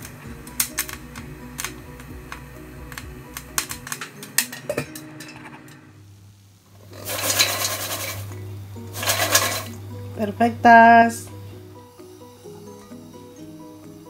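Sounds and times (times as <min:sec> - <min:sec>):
popcorn popping in a pot: 0:00.0 - 0:05.7, 0:06.7 - 0:14.0
popcorn tumbling in a metal bowl: 0:06.8 - 0:11.2.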